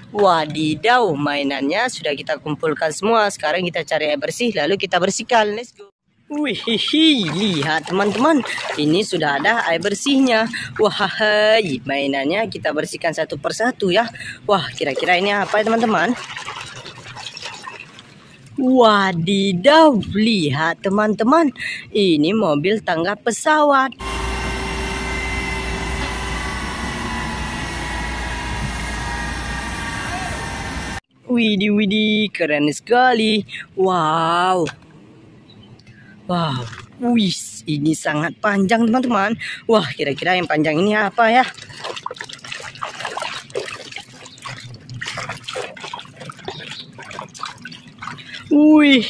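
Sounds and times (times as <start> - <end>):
water splashing in a basin: 6.3 - 11.7, 13.9 - 18.6, 36.4 - 37.1, 39.8 - 49.0
jet turbine whine: 24.0 - 31.0.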